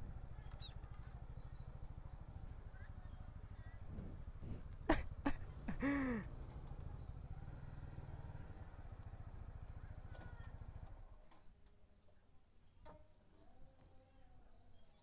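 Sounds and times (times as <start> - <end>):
motorcycle engine idling: 0.0 - 11.2.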